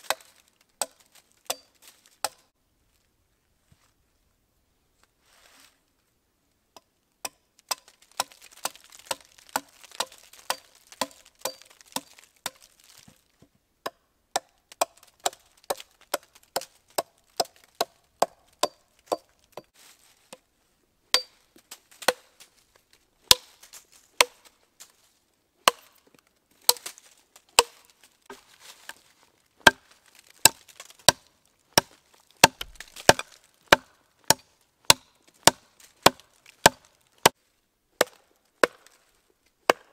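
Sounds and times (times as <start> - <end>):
axe chopping wood: 0.0 - 2.5, 6.8 - 13.1, 13.8 - 19.7, 21.1 - 21.4, 22.0 - 22.4, 23.2 - 23.6, 24.2 - 24.5, 25.6 - 29.0, 29.6 - 37.4, 38.0 - 39.0, 39.6 - 39.9.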